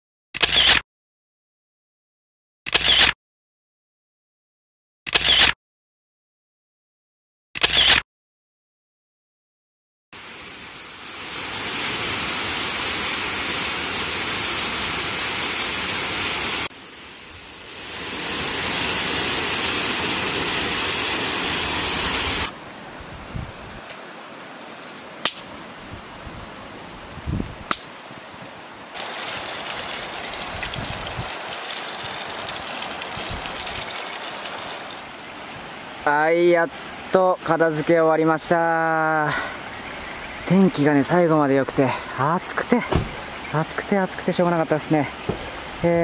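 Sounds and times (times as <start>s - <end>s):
steady hiss: 10.2s - 22.5s
waterfall rushing: 10.2s - 22.5s, 29.0s - 37.2s.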